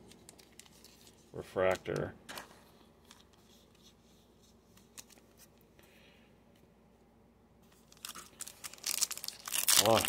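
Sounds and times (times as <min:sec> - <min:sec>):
trading cards clicking and rustling: 0:00.0 - 0:03.5.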